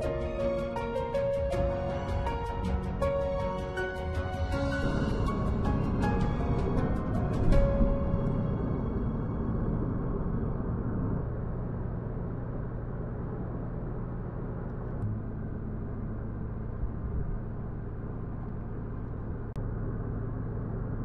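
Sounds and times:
low engine drone: 0.0 - 21.0
tyre and road rumble: 0.0 - 21.0.

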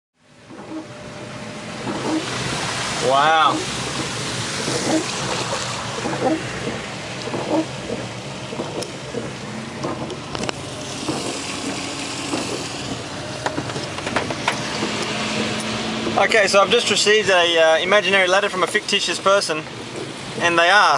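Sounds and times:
rain and wet tyres hissing: 0.2 - 20.9.

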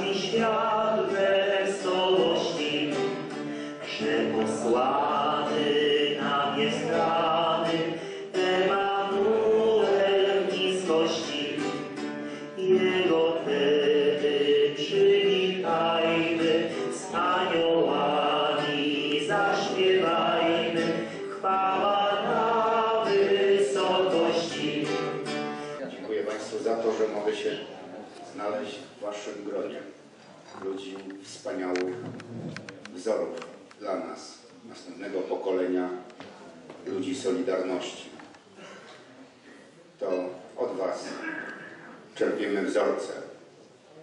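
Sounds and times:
group of people singing: 0.0 - 25.5.

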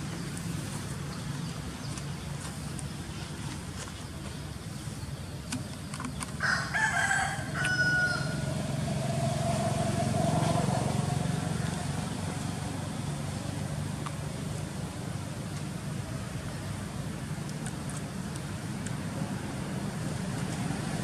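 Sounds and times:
rooster crowing: 6.4 - 8.6.

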